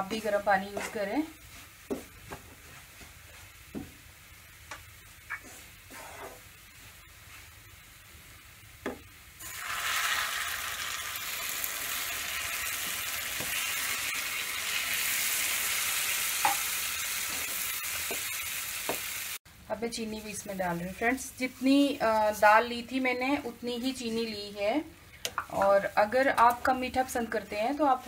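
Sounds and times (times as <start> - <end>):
wooden spatula scraping pan: 0.1 - 1.2, 5.3 - 6.5
loud steady sizzle: 2.8 - 28.0.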